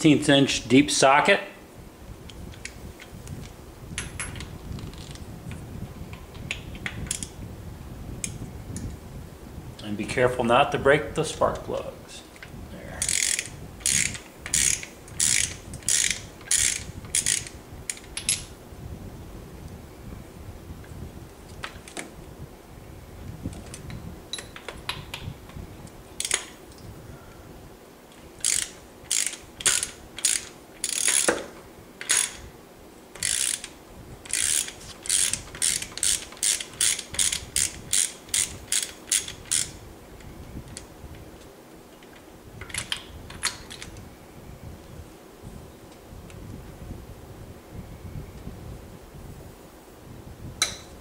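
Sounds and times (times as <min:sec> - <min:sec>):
hand ratchet clicking: 0:13.0 - 0:18.5, 0:26.2 - 0:26.5, 0:28.4 - 0:32.4, 0:33.2 - 0:39.8.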